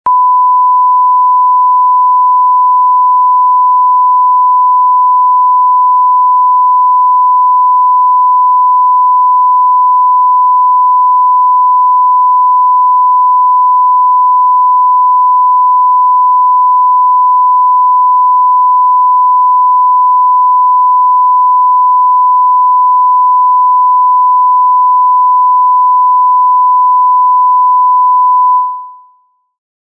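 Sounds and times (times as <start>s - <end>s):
censorship bleep tone: 0.1s - 29.4s.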